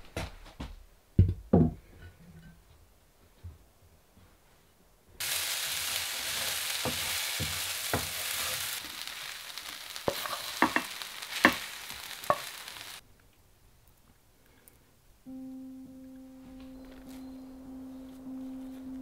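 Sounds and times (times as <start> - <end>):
food sizzling in a frying pan: 5.2 - 13.0
wooden spoon scraping a pan: 10.1 - 12.6.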